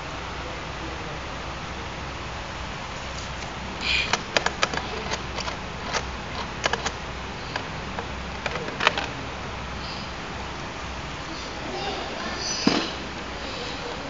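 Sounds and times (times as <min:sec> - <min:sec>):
steady hiss: 0:00.0 - 0:14.0
sharp metal clicks and taps: 0:04.0 - 0:09.1.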